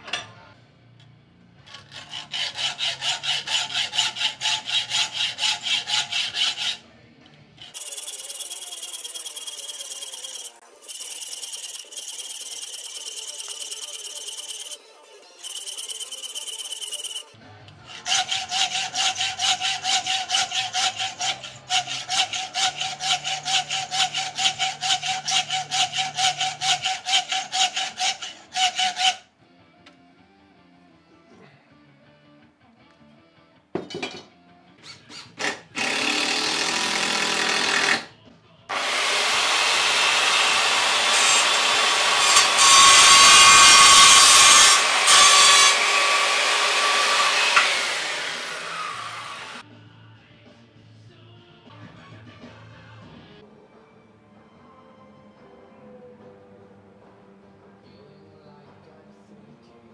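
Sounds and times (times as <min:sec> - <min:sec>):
hacksaw sawing metal: 0:01.7 - 0:06.9, 0:07.6 - 0:14.8, 0:15.4 - 0:17.3, 0:17.9 - 0:29.2, 0:38.7 - 0:49.6.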